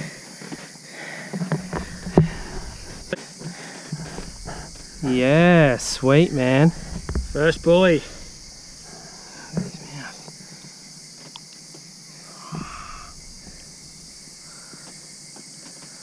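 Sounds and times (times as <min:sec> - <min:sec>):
high-pitched insect chorus: 0:00.0 - 0:16.0
low murmured voices: 0:04.0 - 0:09.7.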